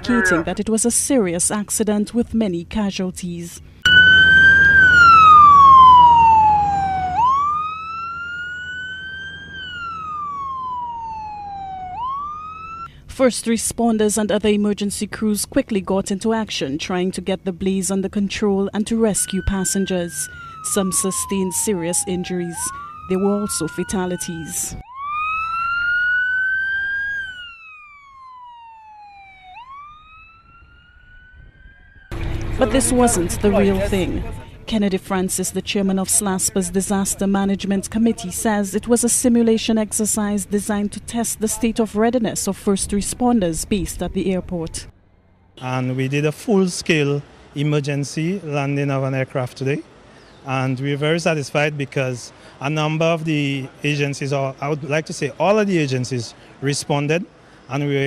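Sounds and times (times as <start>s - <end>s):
emergency siren wailing: 0.0s - 0.6s, 3.8s - 12.9s, 18.7s - 43.7s
steady low rumble: 31.2s - 45.7s.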